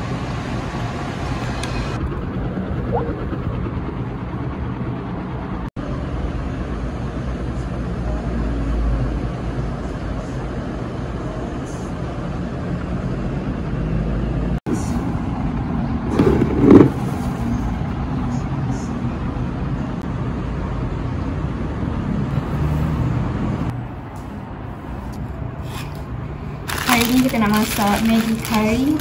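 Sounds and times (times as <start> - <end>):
heavy engine rumbling: 13.8 - 20.0, 21.2 - 29.0.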